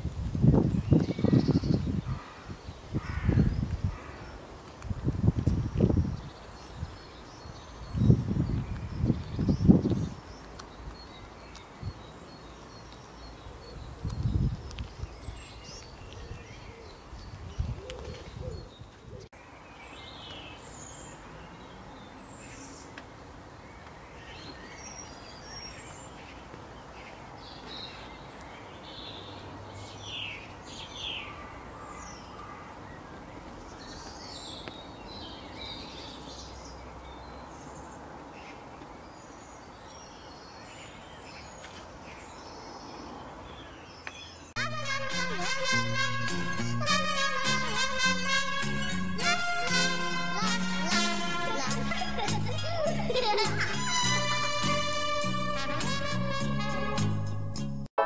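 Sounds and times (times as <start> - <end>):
birds chirping: 0.0 - 55.6
steady outdoor hiss: 0.0 - 57.8.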